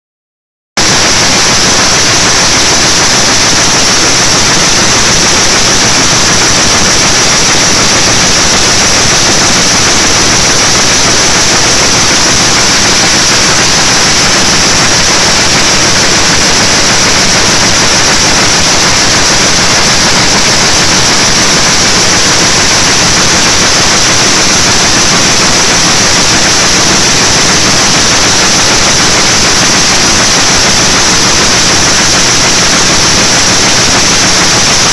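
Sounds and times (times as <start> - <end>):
power loom running: 0.8 - 34.9.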